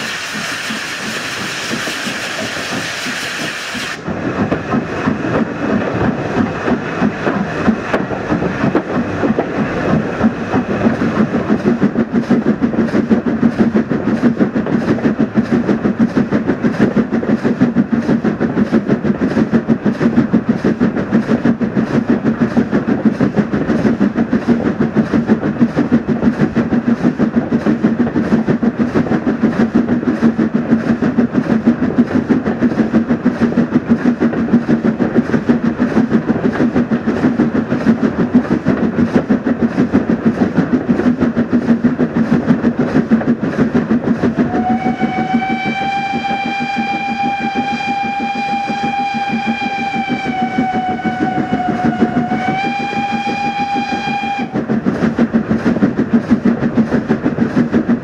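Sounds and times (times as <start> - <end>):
steam locomotive running: 0.0 - 58.0
steam whistle: 44.4 - 54.6.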